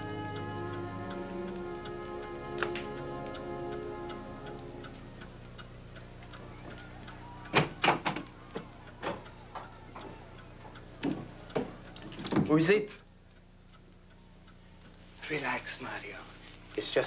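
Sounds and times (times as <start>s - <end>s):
soft background music: 0.0s - 5.6s
steady ticking: 0.0s - 17.0s.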